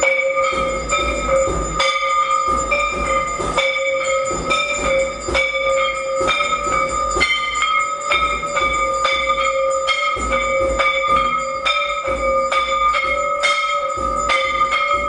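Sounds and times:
low pulsing drum beat: 0:00.0 - 0:15.0
temple bells ringing: 0:00.0 - 0:15.0.

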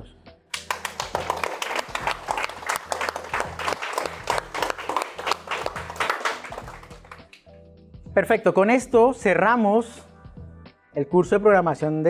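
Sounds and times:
people clapping: 0:00.5 - 0:07.5.

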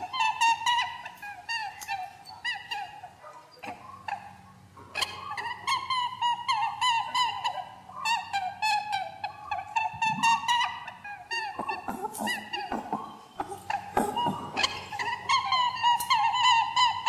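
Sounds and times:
faint low hum: 0:00.0 - 0:17.0
squeaky animal chirps: 0:00.0 - 0:17.0.

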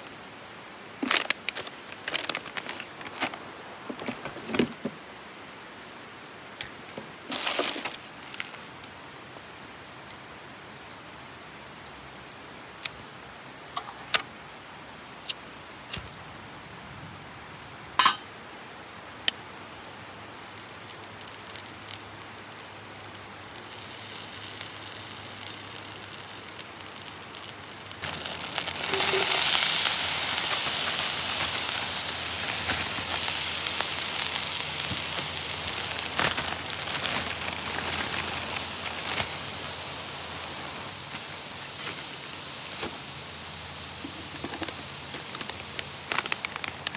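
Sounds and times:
vegetables frying in oil: 0:07.3 - 0:08.5, 0:20.2 - 0:46.9.

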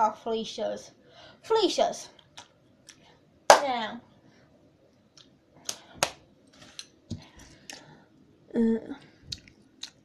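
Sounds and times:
person humming: 0:08.5 - 0:09.1.

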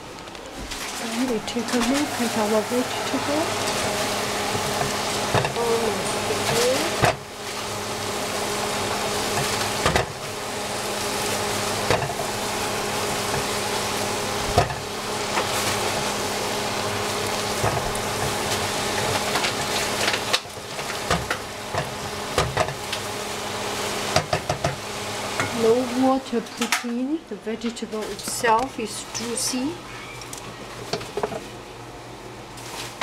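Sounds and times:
vegetables sizzling in pan: 0:01.0 - 0:26.2.

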